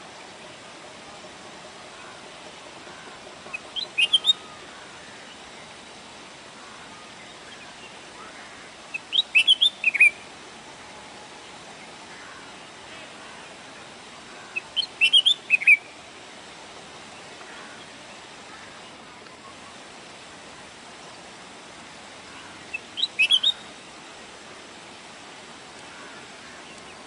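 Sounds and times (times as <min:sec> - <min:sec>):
steady hiss: 0:00.0 - 0:27.0
bird singing high chirpy notes: 0:03.5 - 0:04.5, 0:08.9 - 0:10.2, 0:14.5 - 0:16.0, 0:22.7 - 0:23.7.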